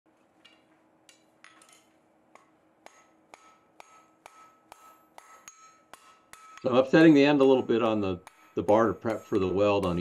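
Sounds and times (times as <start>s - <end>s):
hammer ringing on metal bar: 2.8s - 10.0s.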